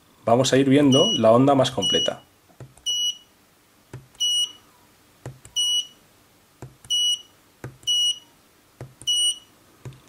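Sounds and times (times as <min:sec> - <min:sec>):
multimeter key beeps: 0:00.9 - 0:01.2, 0:01.8 - 0:02.2, 0:02.8 - 0:03.3, 0:04.2 - 0:04.6, 0:05.5 - 0:06.0, 0:06.9 - 0:08.3, 0:09.0 - 0:09.5.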